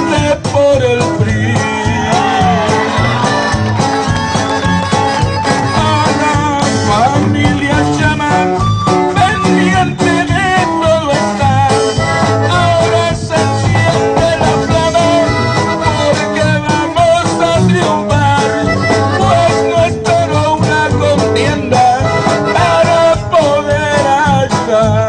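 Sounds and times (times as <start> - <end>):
lively music with bass line: 0.0 - 25.0.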